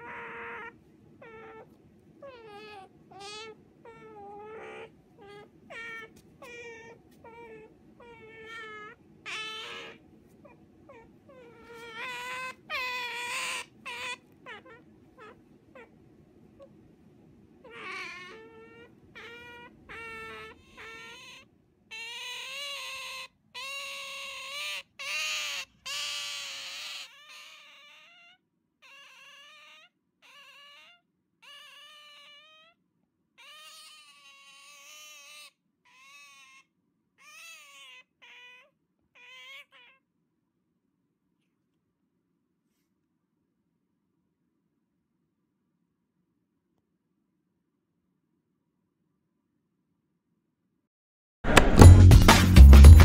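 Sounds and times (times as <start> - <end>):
otter whining squeaks: 0.0 - 15.9, 17.7 - 28.2.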